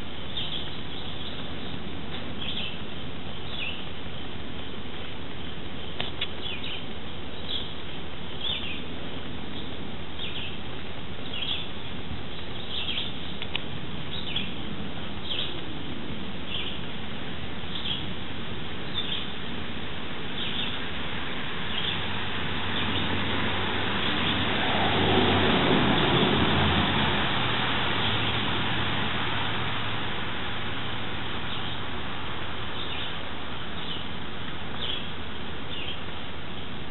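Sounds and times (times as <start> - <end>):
broad noise with low hum: 0.0 - 36.9
outdoor noise: 0.0 - 36.9
bird chirping: 0.3 - 2.8, 3.4 - 3.9, 6.3 - 7.8, 8.4 - 8.9, 9.5 - 10.6, 11.2 - 11.7, 12.3 - 13.5, 14.1 - 14.6, 15.2 - 15.6, 16.5 - 16.9, 17.7 - 18.1, 18.8 - 19.4, 20.3 - 20.8, 21.6 - 23.3, 23.9 - 26.9, 31.4 - 31.9, 32.7 - 34.1, 34.7 - 36.1.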